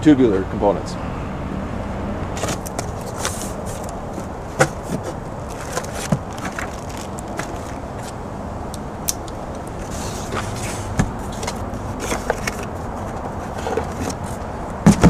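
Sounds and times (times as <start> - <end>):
cardboard box flaps rustling: 2.4 - 8.2
plastic bags crinkling: 2.5 - 8.2.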